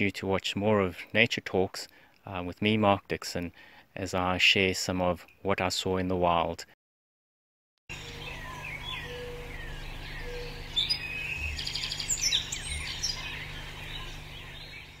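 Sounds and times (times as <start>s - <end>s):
birds chirping and whistling: 7.9s - 15.0s.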